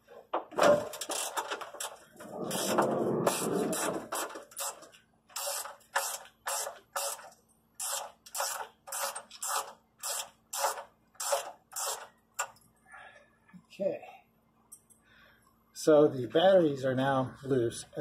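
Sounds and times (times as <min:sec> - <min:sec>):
scraping noise: 0:02.2 - 0:04.3.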